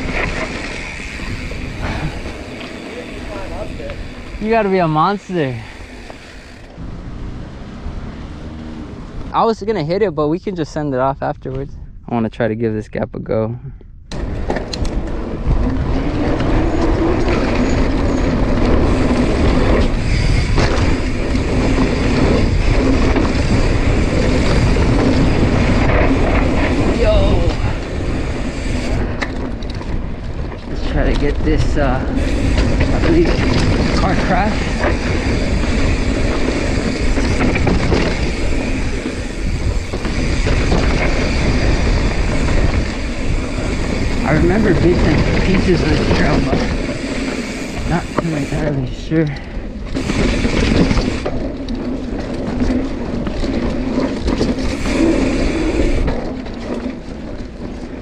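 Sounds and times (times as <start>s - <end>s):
tyres rumbling on dirt: 0.0s - 10.8s, 14.2s - 58.0s
bike rattling: 0.0s - 11.7s, 14.0s - 58.0s
wind rushing over microphone: 0.0s - 58.0s.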